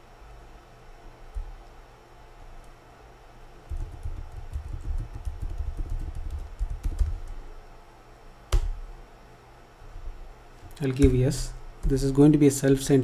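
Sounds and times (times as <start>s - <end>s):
typing on keyboard: 3.7s - 7.4s.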